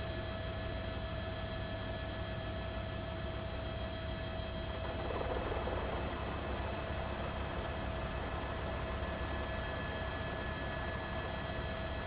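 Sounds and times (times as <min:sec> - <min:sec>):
helicopter engine and rotor: 0:00.0 - 0:12.0.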